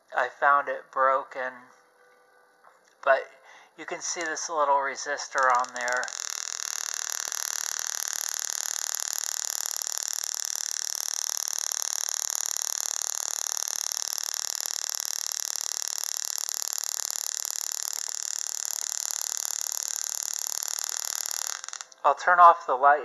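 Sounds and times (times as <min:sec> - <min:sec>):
tesla coil crackling buzz: 0:03.8 - 0:22.1.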